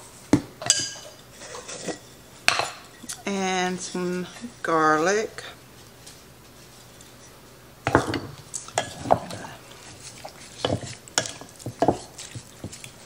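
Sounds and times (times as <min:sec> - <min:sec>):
wooden spatula scraping a bowl: 0:01.4 - 0:02.2, 0:08.8 - 0:13.0.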